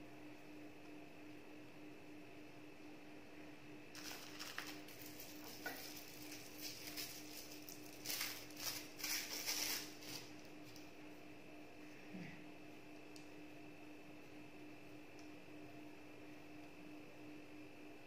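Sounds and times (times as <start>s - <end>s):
faint steady hum: 0.0s - 18.0s
plastic bag crinkling: 4.0s - 10.8s.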